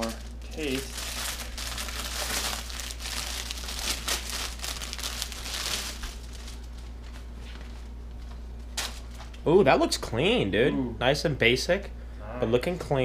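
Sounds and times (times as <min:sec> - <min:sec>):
plastic bag crinkling: 0:00.0 - 0:07.9
low steady hum: 0:00.0 - 0:13.0.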